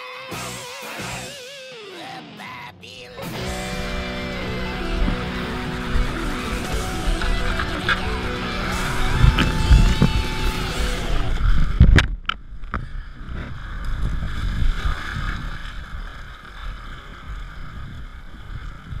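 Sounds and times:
background music: 0.0s - 11.4s
whitewater rushing: 3.2s - 11.4s.

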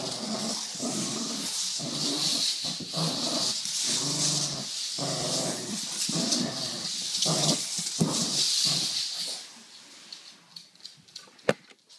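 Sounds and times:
dog growling and whining: 0.0s - 9.0s
steady hiss: 0.0s - 11.2s.

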